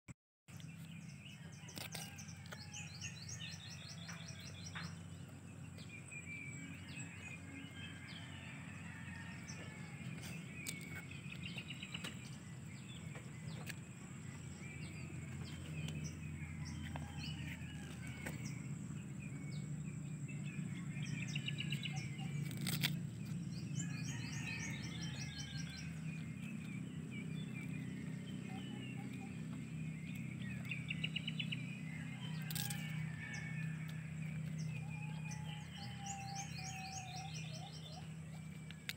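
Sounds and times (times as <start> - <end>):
steady low rumble: 2.7 - 38.9
small birds chirping: 9.2 - 38.9
goat chewing leaf clicks: 22.4 - 23.3.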